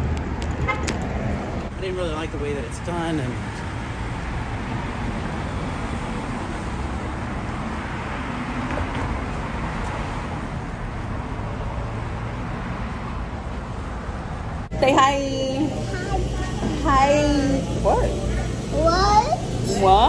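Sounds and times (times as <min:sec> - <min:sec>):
cars driving through intersection: 0:00.0 - 0:20.0.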